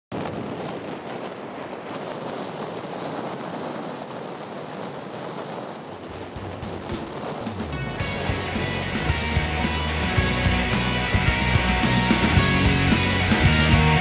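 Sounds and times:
waves breaking in surf: 0:00.1 - 0:14.0.

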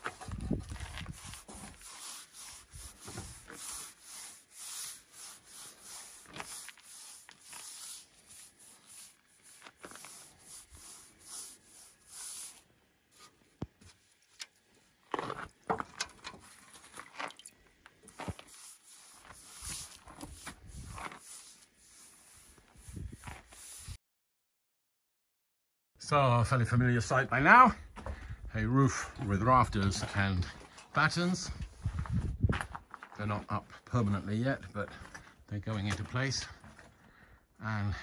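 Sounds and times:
paintbrush strokes on wood: 0:00.0 - 0:14.2, 0:18.1 - 0:24.0.

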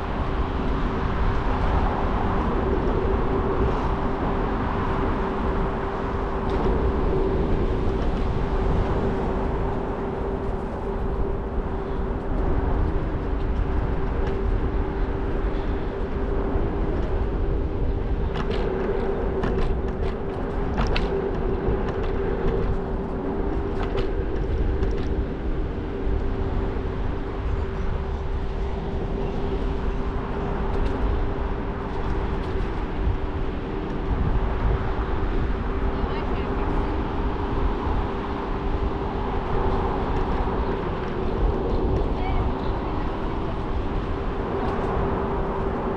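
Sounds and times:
scooter rumble and whine: 0:00.0 - 0:45.9.

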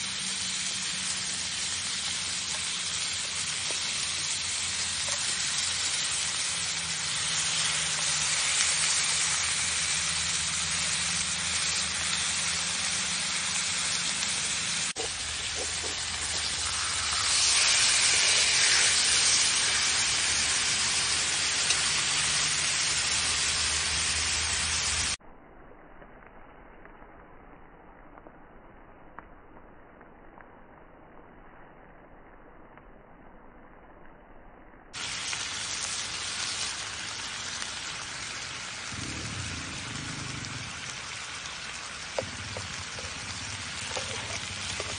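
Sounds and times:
steaks sizzling in a grill pan: 0:00.0 - 0:25.2, 0:35.0 - 0:44.9.

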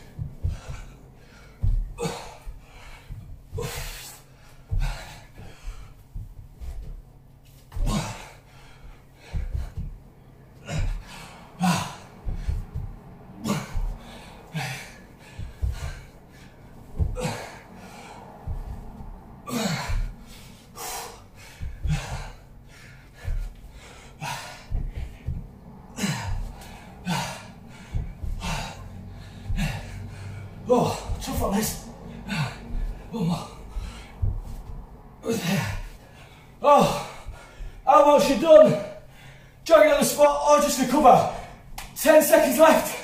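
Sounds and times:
man breathing hard: 0:00.0 - 0:37.9, 0:38.9 - 0:39.7
soft low thumps: 0:00.0 - 0:38.1.

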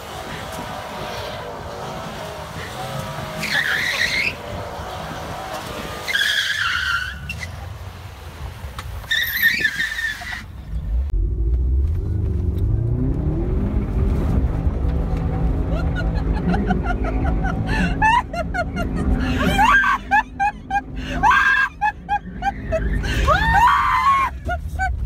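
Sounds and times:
car engine running hard: 0:00.0 - 0:06.3, 0:10.6 - 0:23.6
tyres skidding: 0:00.0 - 0:25.0
engine drone inside car cabin: 0:10.8 - 0:25.0.

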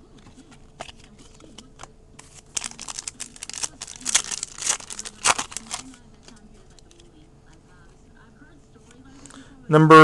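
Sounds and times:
foil wrapper crinkling and tearing: 0:02.2 - 0:06.4.

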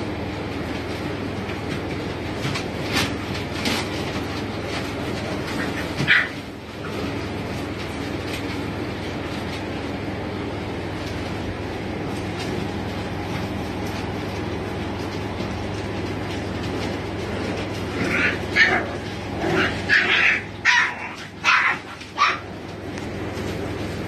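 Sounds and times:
puppies yelping and barking: 0:05.3 - 0:07.1, 0:17.5 - 0:22.6.

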